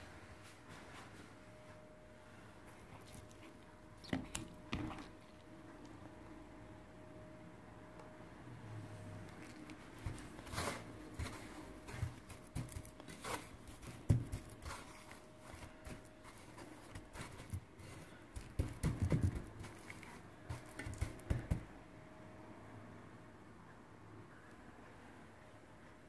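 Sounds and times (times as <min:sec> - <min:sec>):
faint steady hum: 0:00.0 - 0:26.0
breadcrumbs rustling: 0:09.3 - 0:21.7
hand patting cutlet in breadcrumbs: 0:09.3 - 0:21.7.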